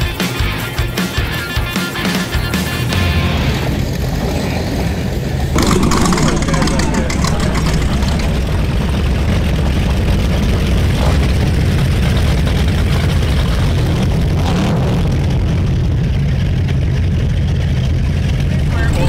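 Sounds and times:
powerboat engines droning: 4.7 - 14.4, 15.2 - 19.0.

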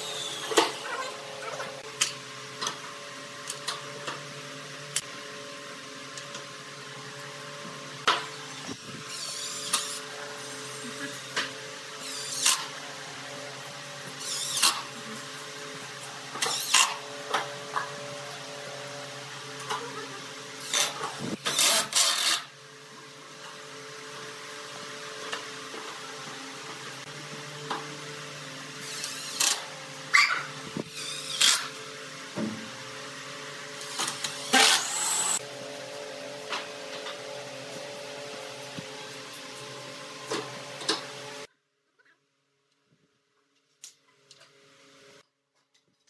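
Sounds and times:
cordless drill driving screws: 14.2 - 14.8, 33.8 - 35.4.

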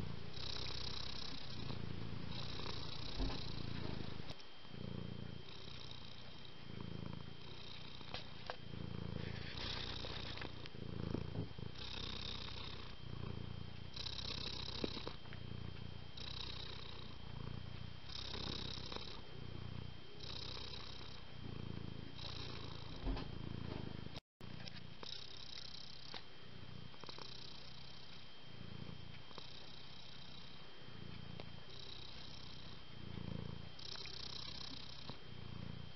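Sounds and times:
cat purring: 0.0 - 35.9.

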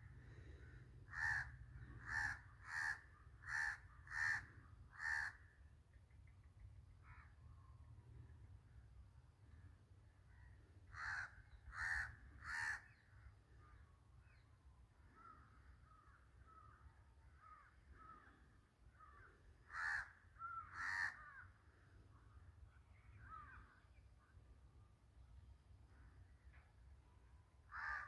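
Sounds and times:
crow cawing: 0.1 - 5.6, 7.0 - 7.4, 10.4 - 13.1, 15.1 - 21.8, 23.2 - 23.8, 27.7 - 28.0.

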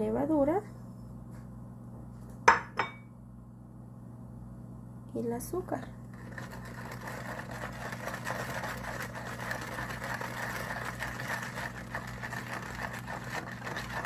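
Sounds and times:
steady low hum: 0.0 - 14.0
metal spoon scraping while stirring: 6.2 - 14.0.

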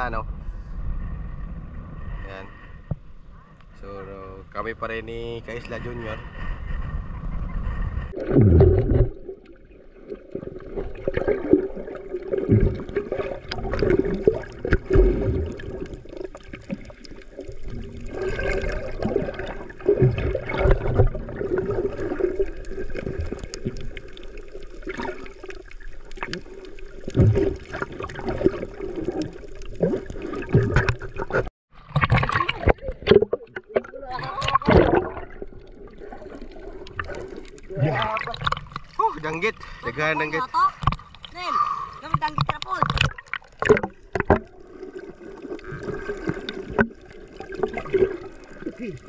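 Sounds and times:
sea water gurgling and sloshing: 0.0 - 49.0.

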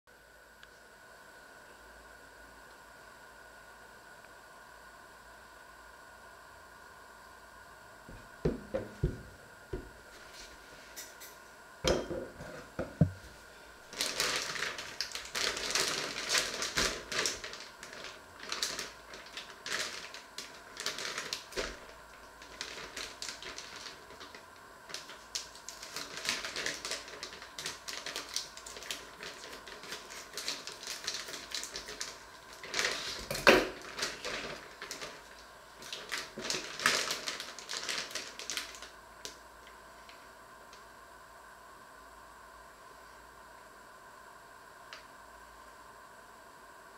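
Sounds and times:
plastic bag crinkling: 13.8 - 39.4.

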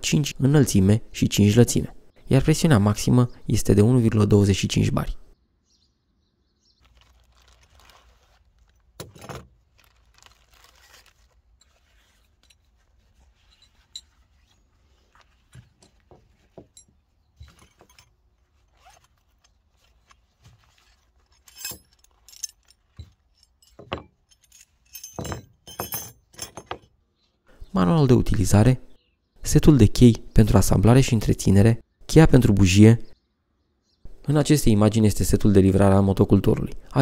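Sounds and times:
plastic bag rustling: 6.8 - 23.9
metal tools clinking: 8.6 - 26.9.

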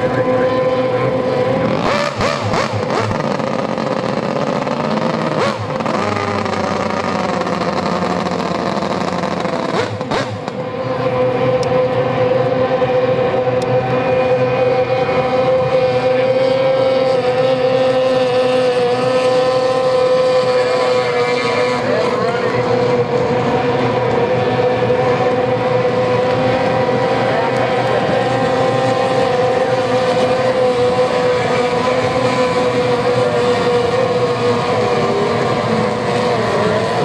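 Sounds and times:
outboard racing engines whining: 0.0 - 37.0.

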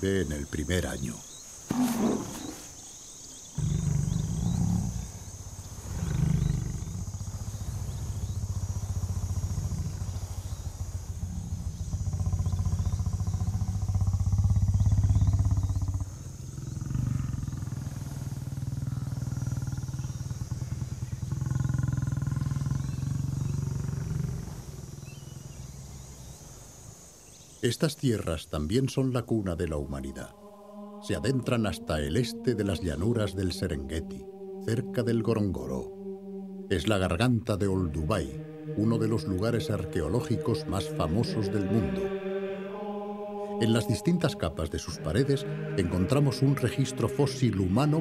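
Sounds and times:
high insect drone: 0.0 - 48.0
lion growling: 1.2 - 2.8, 3.5 - 26.8, 29.3 - 42.2.

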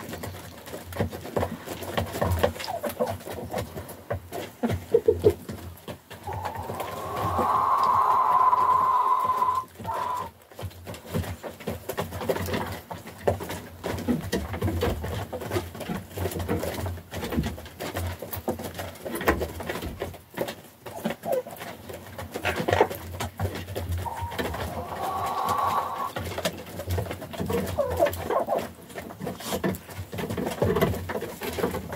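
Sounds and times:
hens clucking softly: 0.0 - 10.4, 20.4 - 31.9
beaks tapping on feed: 0.0 - 31.9.

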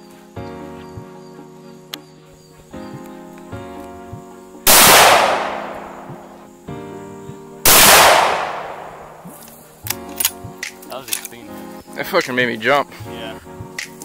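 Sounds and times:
background music: 0.0 - 14.0
rifle shots: 4.7 - 6.4, 7.6 - 9.5.

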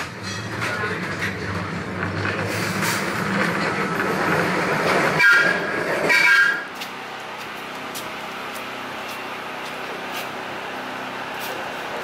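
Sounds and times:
streetcar wheels and motors rumbling: 0.0 - 12.0.

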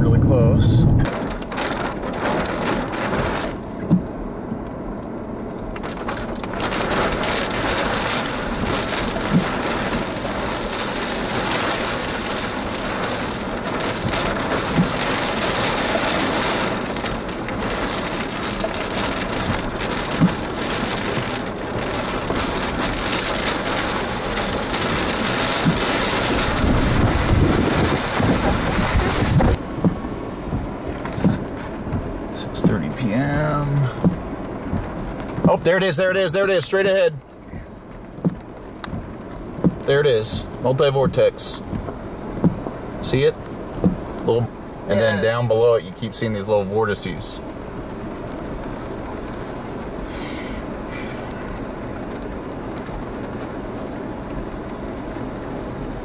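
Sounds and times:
thunder rumble: 0.0 - 3.6, 5.9 - 35.6
rain: 0.0 - 56.0
wind: 0.0 - 56.0
raindrops ticking: 1.0 - 50.0, 50.6 - 56.0.

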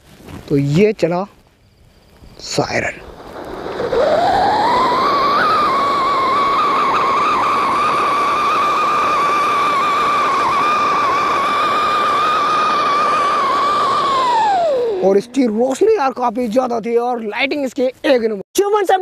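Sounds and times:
rushing hiss: 0.0 - 16.4
siren firework whistling: 2.4 - 15.2.

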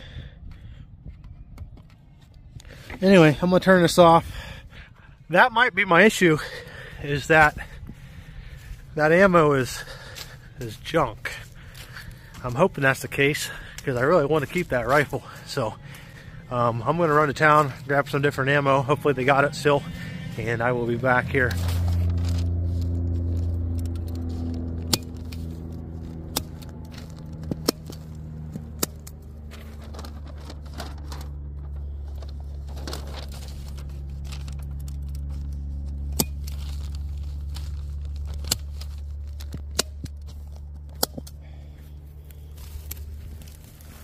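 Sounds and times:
low engine hum: 0.0 - 44.0
paper rustling: 21.3 - 28.2, 29.4 - 40.8.

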